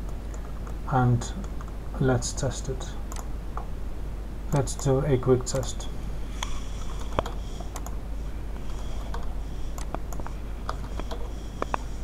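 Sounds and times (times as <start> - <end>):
steady low hum: 0.0 - 12.0
keyboard keys tapping: 8.7 - 11.9.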